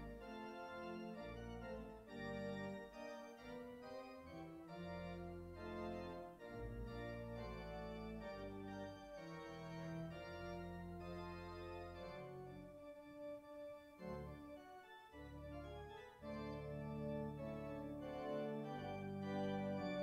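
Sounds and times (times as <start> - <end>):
organ playing sustained chords: 0.0 - 20.0.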